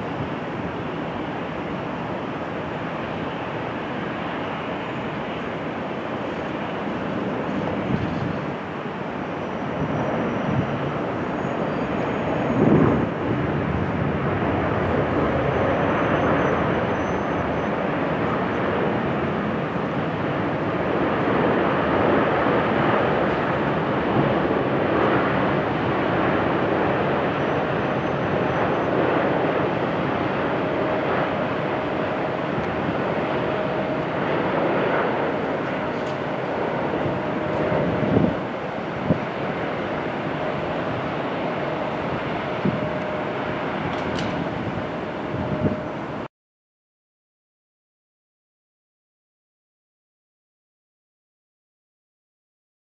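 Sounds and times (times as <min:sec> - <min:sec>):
faint engine whine: 0:00.0 - 0:46.3
jet engines rushing: 0:00.0 - 0:46.3.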